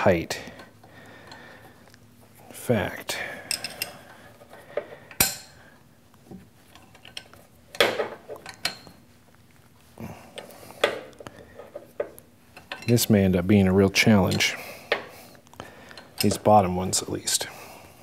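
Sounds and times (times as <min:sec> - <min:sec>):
wrench clinking against metal: 0:03.4 - 0:04.1, 0:12.6 - 0:13.2, 0:14.2 - 0:15.0, 0:16.0 - 0:16.5.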